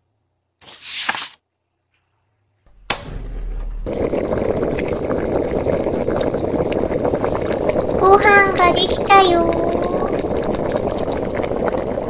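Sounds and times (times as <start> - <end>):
short whoosh: 2.7 - 5.0
pot boiling with popping bubbles: 2.8 - 12.0.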